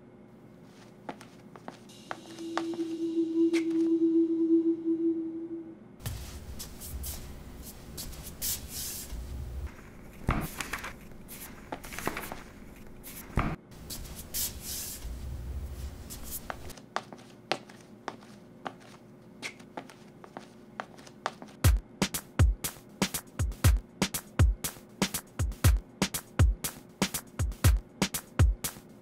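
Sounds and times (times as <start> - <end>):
book pages rustling: 6.0 - 21.6.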